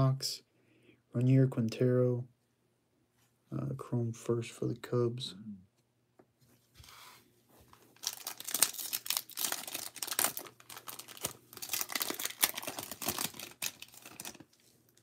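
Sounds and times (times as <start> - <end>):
wrapper crinkling: 7.9 - 15.0.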